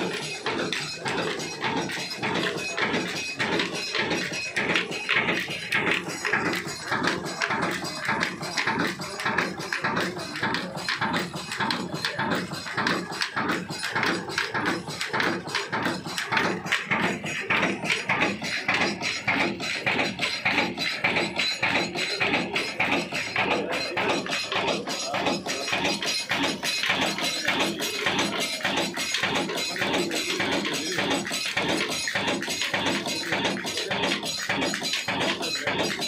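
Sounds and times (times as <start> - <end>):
diesel engine clattering: 0.0 - 36.0.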